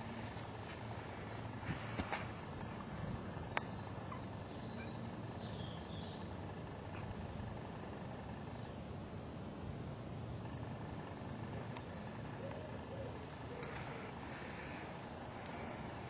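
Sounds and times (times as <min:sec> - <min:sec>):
outdoor background noise: 0:00.0 - 0:16.0.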